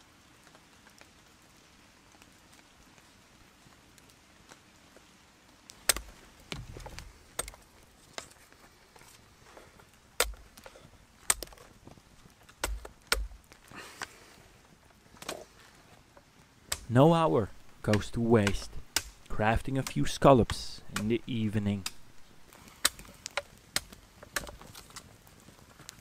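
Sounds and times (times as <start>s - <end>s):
wood splitting crackle: 3.7s - 26.0s
blade knocking wooden rods: 17.8s - 22.0s.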